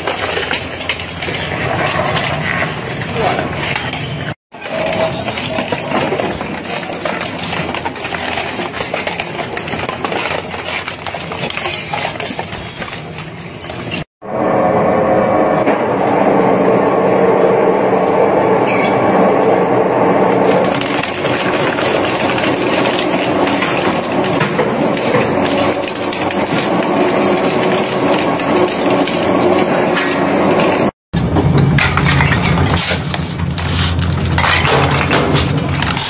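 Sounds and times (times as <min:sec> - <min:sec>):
shredder crushing plastic: 0:04.5 - 0:14.0, 0:20.4 - 0:36.0.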